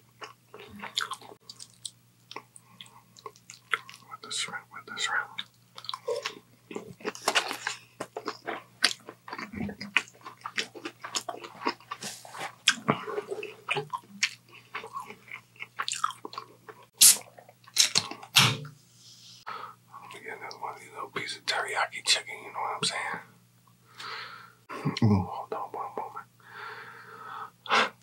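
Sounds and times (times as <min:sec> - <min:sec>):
faint electrical hum: 0:00.0 - 0:28.0
wet chewing and biting: 0:05.4 - 0:18.3.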